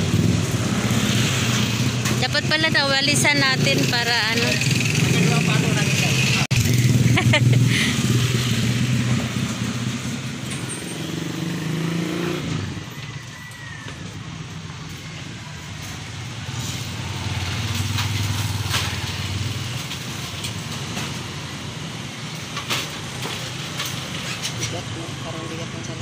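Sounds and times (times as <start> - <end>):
vehicle engines passing: 0.0 - 26.0.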